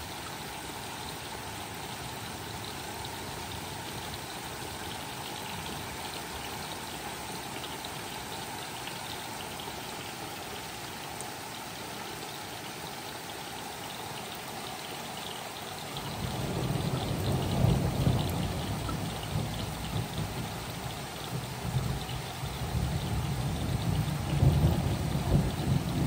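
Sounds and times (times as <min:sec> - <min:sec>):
rain pattering: 0:00.0 - 0:26.0
rumble of thunder: 0:16.0 - 0:26.0.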